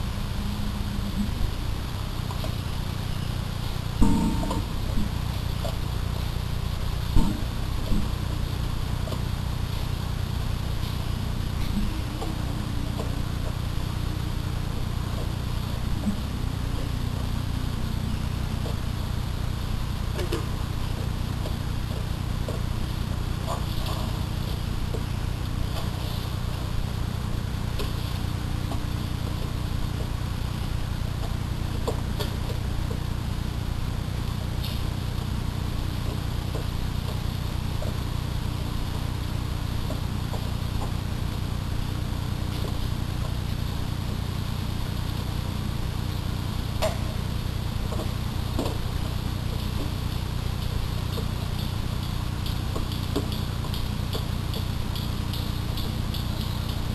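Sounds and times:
low electrical hum: 0.0 - 56.9.

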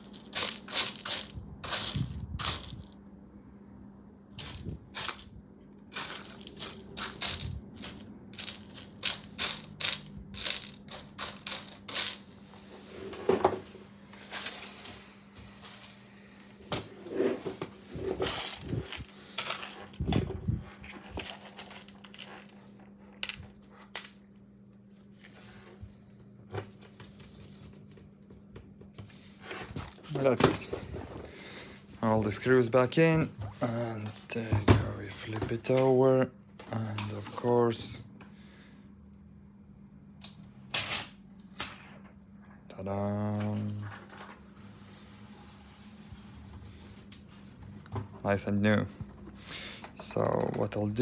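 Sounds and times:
metal screws rattling in plastic bin: 6.0 - 12.3.

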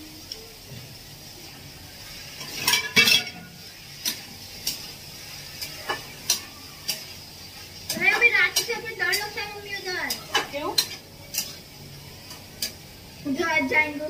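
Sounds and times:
metal spatula scraping a wok: 2.1 - 12.9.

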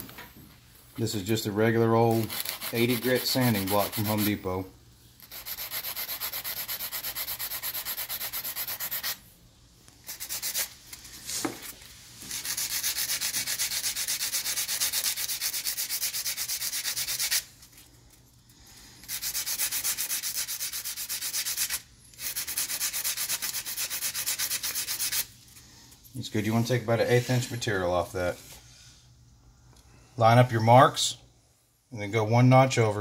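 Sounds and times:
sanding block rasping on plastic: 2.0 - 4.5, 5.2 - 9.2, 10.1 - 10.7, 12.3 - 17.5, 19.0 - 25.3.

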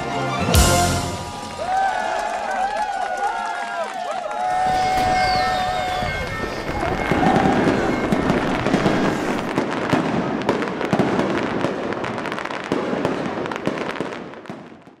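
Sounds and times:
fireworks bursting and crackling: 4.4 - 15.0.

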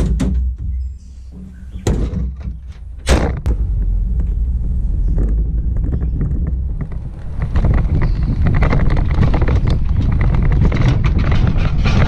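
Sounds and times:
road and wind noise: 0.0 - 12.0
pickup truck driving: 2.9 - 11.0
loud slam: 3.0 - 3.7.

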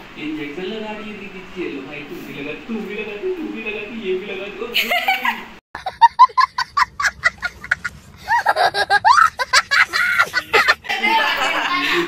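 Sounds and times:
child squealing laughs: 4.8 - 12.0
young child laughing: 4.8 - 12.0.

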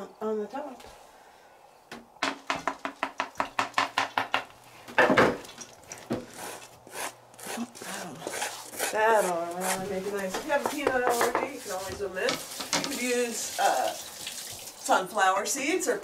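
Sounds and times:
utensil scraping a dish: 6.2 - 13.3
utensil tapping on a dish: 10.3 - 11.5.

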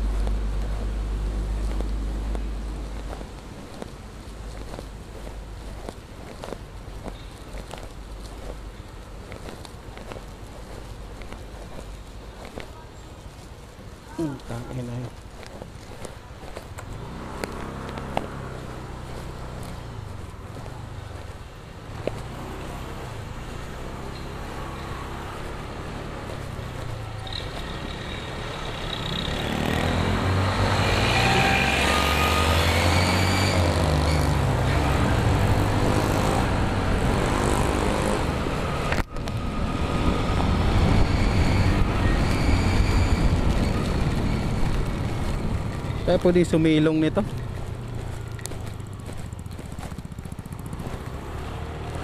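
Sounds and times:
tyres on wet road: 0.0 - 52.0
motorcycle engine: 16.8 - 52.0.

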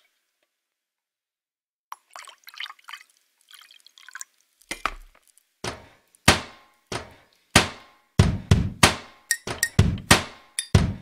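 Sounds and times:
water dripping and bubbling: 1.9 - 5.3
deep drum hits: 5.7 - 11.0.

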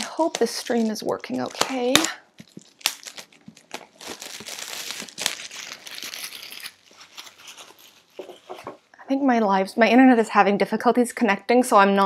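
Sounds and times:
plastic wrap crinkling and tearing: 0.0 - 8.9.

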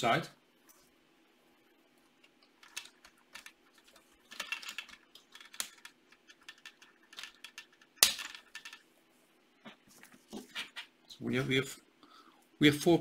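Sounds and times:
plastic bricks clicking and rattling: 2.6 - 8.8.

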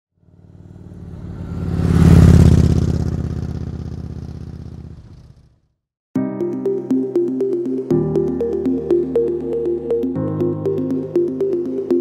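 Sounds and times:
motorcycle passing by: 0.2 - 5.8.

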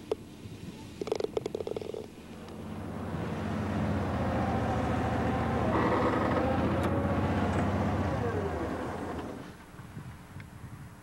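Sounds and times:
utility vehicle engine running: 2.3 - 9.6.

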